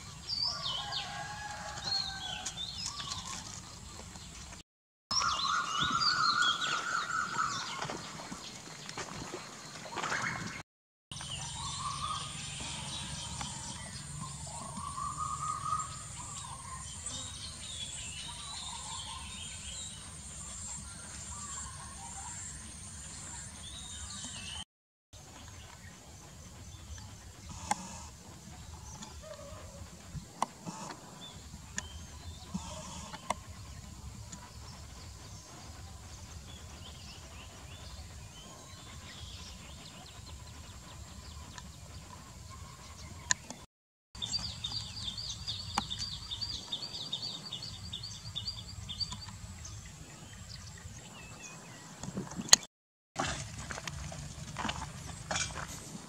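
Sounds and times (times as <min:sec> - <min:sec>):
birds chirping: 0:00.0 - 0:24.6, 0:25.2 - 0:52.7.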